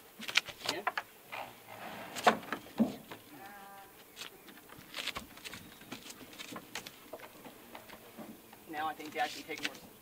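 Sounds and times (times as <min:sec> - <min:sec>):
wooden knocks and bumps: 0:02.2 - 0:03.2.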